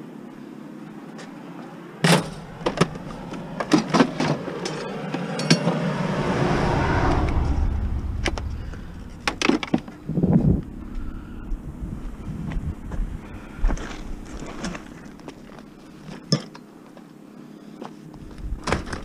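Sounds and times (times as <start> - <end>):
rushing noise with low rumble: 2.2 - 16.0.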